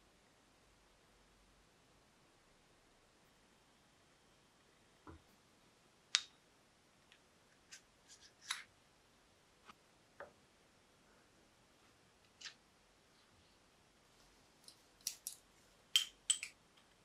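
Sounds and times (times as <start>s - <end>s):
small metal parts clicking: 14.7s - 15.4s.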